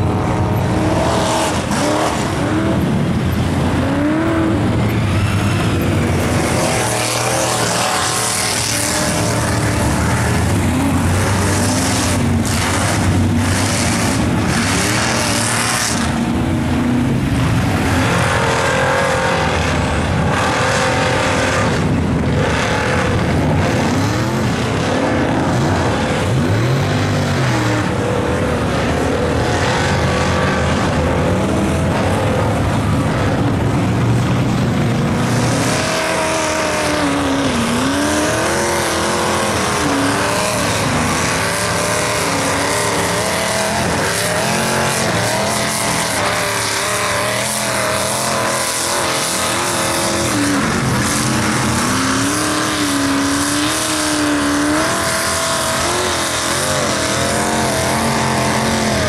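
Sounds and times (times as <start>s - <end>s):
truck engines revving: 0.0s - 59.0s.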